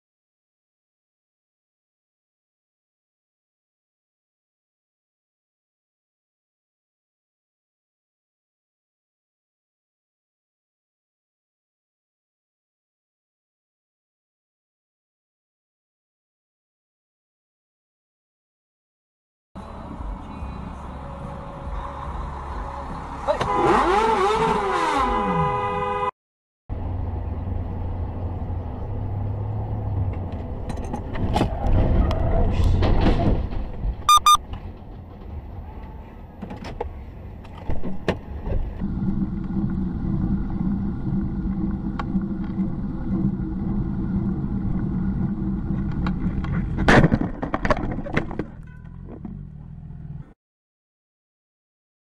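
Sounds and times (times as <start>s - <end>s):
car engine and road noise: 19.6s - 26.1s, 26.7s - 50.4s
short double beep: 34.1s - 34.4s.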